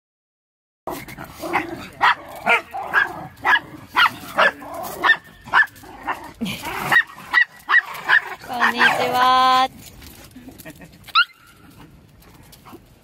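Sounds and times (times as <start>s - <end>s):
dog barking: 1.5s - 5.8s, 6.9s - 9.2s.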